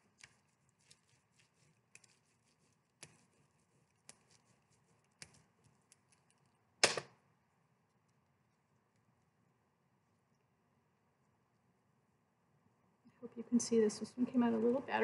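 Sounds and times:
tool rubbing on paper: 0:00.0 - 0:05.8.

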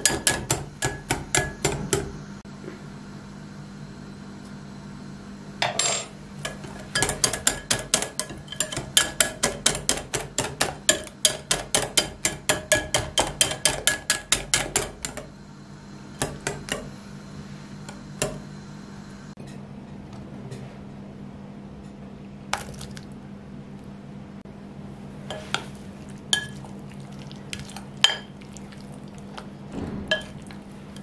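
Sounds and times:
steady low hum: 0:00.0 - 0:31.0
whisk clicking on glass bowl: 0:06.5 - 0:15.2.

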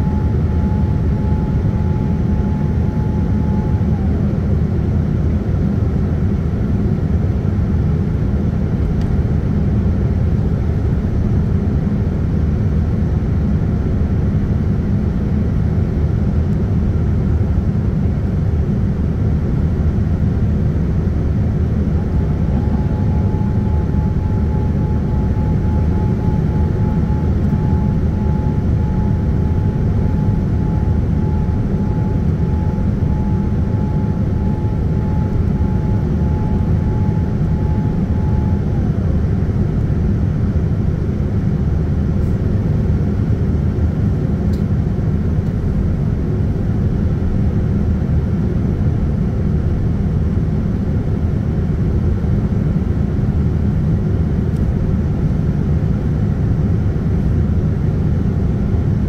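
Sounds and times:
faint high whine: 0:00.0 - 0:05.0, 0:21.1 - 0:41.5
airplane cabin rumble: 0:00.0 - 0:59.0.

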